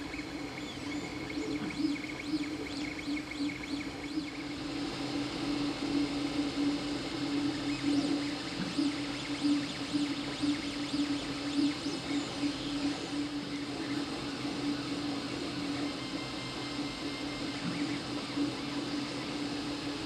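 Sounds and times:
stepper motors humming: 0:00.0 - 0:20.0.

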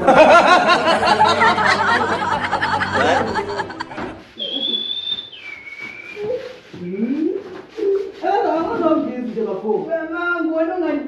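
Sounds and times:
men laughing: 0:00.0 - 0:04.3
two-note whistle: 0:04.4 - 0:06.4.

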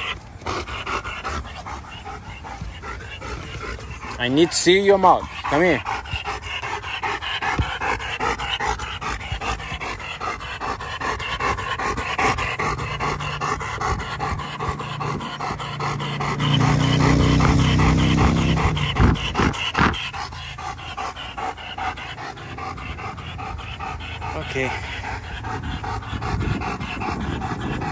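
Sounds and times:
dog panting heavily: 0:00.0 - 0:27.9.

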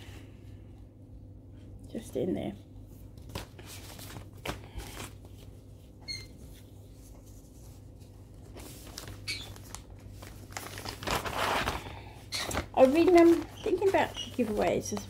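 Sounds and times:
rustling craft materials: 0:02.9 - 0:15.0
faint squeak: 0:06.0 - 0:06.4.

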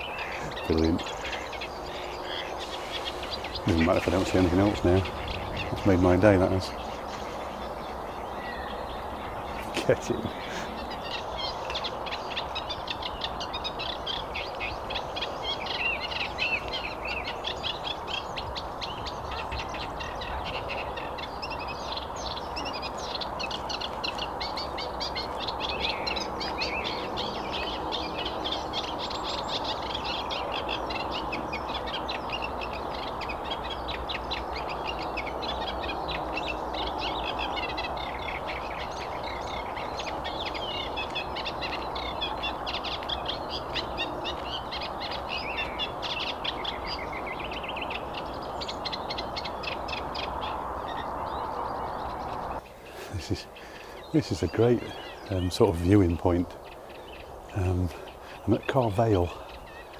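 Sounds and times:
bird singing rapid chattering notes: 0:00.0 - 0:59.9
steady background noise: 0:00.0 - 0:59.9.

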